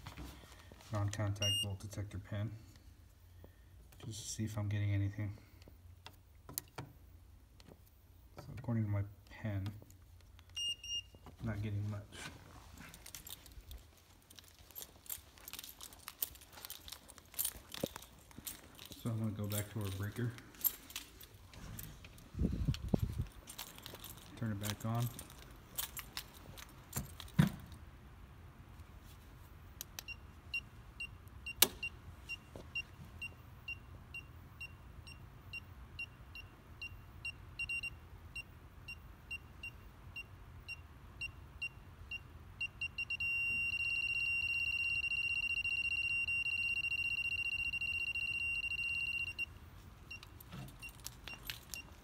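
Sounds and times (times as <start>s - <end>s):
short electronic beeps: 40.7s - 49.5s.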